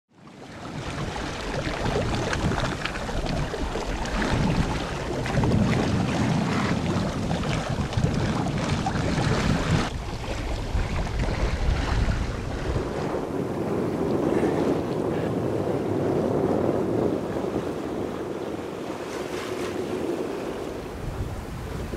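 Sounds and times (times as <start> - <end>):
water splashing along a hull: 0.1 - 21.9
wind buffeting microphone: 0.3 - 21.9.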